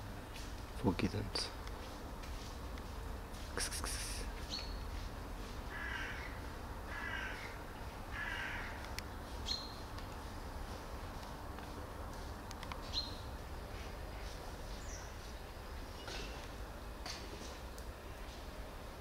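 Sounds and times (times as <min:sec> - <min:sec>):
bird high chirp: 0:04.5 - 0:04.8
bird harsh calls: 0:05.7 - 0:08.8.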